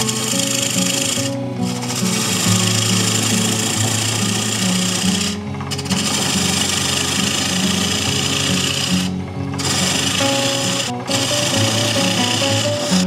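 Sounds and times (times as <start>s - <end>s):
gouge cutting wood on lathe: 0.0s - 13.0s.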